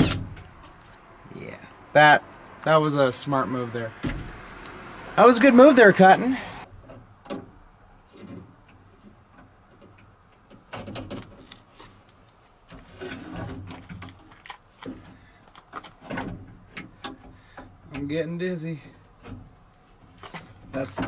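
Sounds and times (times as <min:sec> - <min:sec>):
plastic clicks and rustles: 0:08.1 - 0:17.7.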